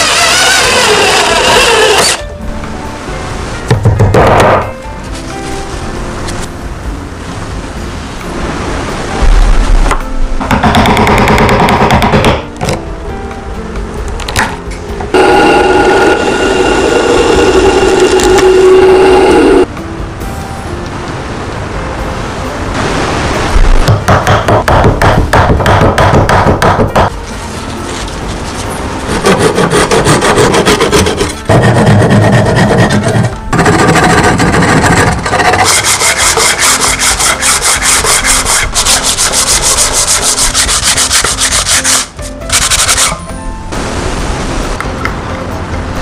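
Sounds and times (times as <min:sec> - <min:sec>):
hand saw cutting wood: 0:00.0 - 0:02.3, 0:29.1 - 0:43.2.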